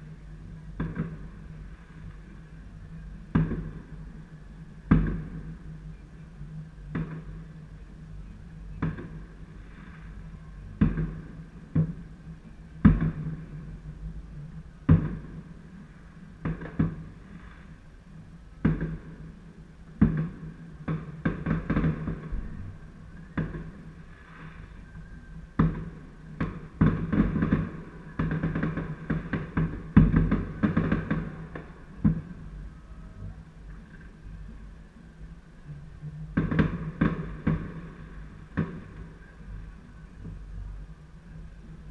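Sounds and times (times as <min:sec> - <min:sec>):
fireworks bangs: 0:00.7 - 0:02.3, 0:03.2 - 0:04.1, 0:04.9 - 0:06.0, 0:08.7 - 0:12.1, 0:12.8 - 0:13.8, 0:14.8 - 0:17.8, 0:18.6 - 0:32.6, 0:36.3 - 0:40.7.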